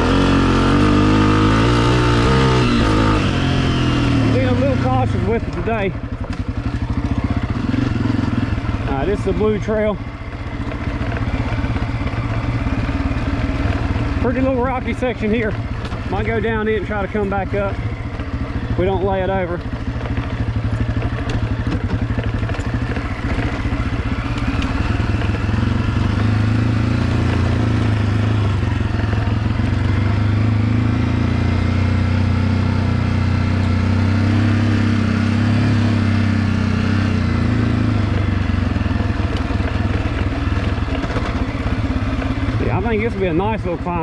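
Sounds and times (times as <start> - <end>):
dirt bike engine running: 0.0 - 44.0.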